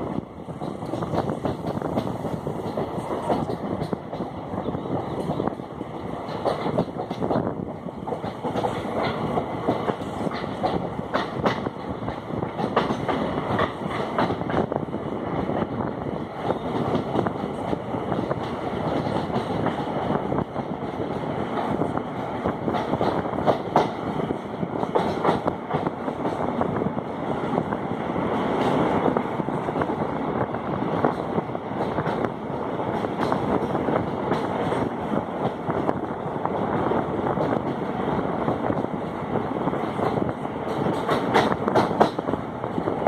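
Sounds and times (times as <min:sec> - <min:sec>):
train wheels rumbling on rails: 0:00.0 - 0:43.0
wheels clacking over track joints: 0:00.5 - 0:14.7, 0:16.4 - 0:20.1, 0:20.7 - 0:26.5, 0:39.8 - 0:43.0.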